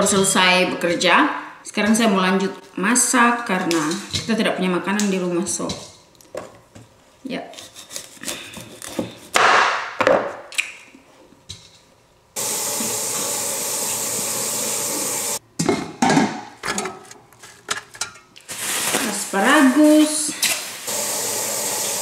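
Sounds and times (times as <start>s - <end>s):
kitchen tap running: 12.4s - 15.4s, 20.4s - 22.0s.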